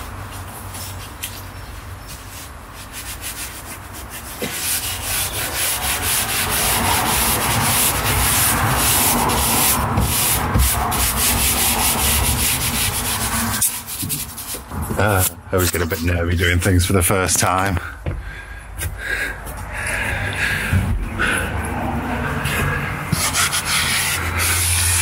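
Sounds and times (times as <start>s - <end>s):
hands rubbing carpet lining: 0.0s - 15.3s.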